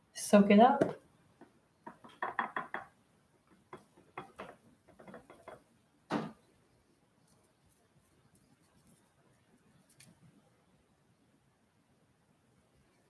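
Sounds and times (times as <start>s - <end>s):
makeup brushes clicking and tapping: 0.8s - 2.9s, 3.5s - 5.6s.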